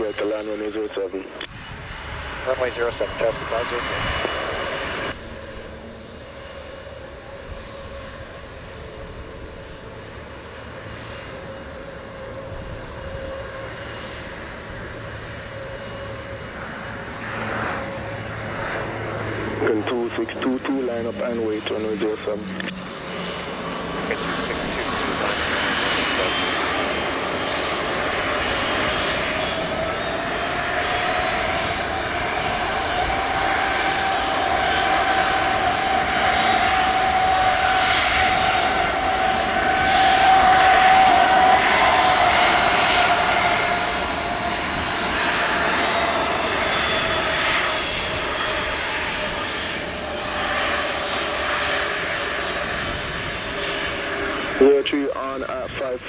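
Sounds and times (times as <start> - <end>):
turboprop engines whining: 0.0 - 56.0.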